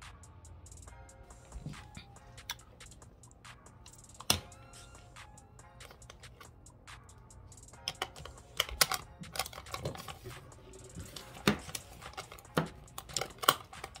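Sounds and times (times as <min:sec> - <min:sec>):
plastic makeup items clicking: 0:07.8 - 0:14.0.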